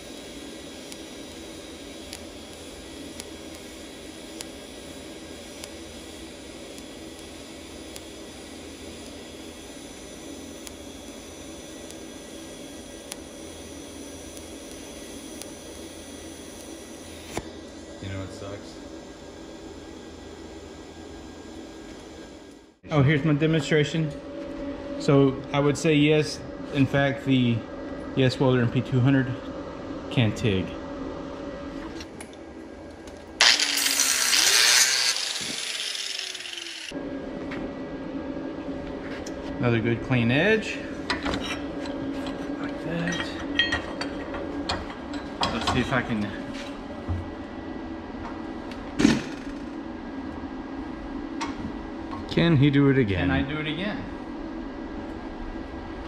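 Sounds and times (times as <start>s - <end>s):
welding arc hissing: 0.0s - 18.7s, 33.4s - 37.0s
falling whine: 32.6s - 38.9s
angle grinder grinding steel: 33.4s - 37.0s.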